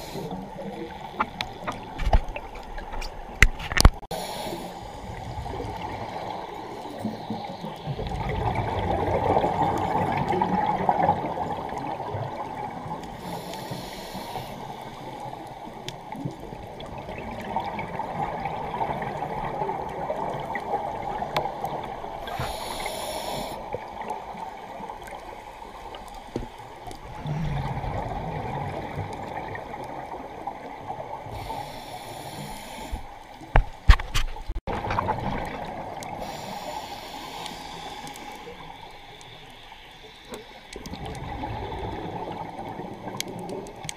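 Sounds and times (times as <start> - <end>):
regulator inhalation hiss: 0.0 - 0.7, 4.1 - 5.3, 13.1 - 15.7, 22.2 - 23.8, 31.2 - 33.4, 36.1 - 40.7
gurgling exhaled bubbles: 4.9 - 13.1, 16.1 - 22.7, 27.0 - 31.5, 34.7 - 36.6, 40.7 - 43.9.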